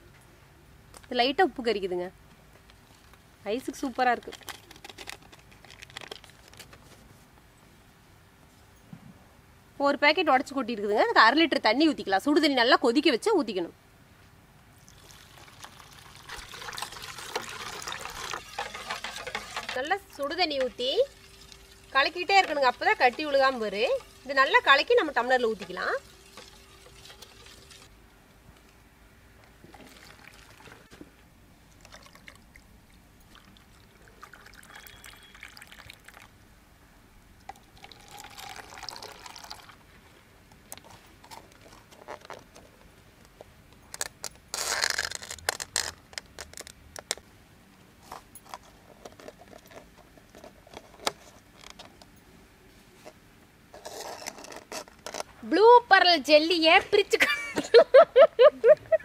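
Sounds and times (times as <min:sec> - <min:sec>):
liquid pouring into plastic cups: 0:14.8 - 0:27.9, 0:29.7 - 0:30.9, 0:31.7 - 0:36.4, 0:37.4 - 0:39.8.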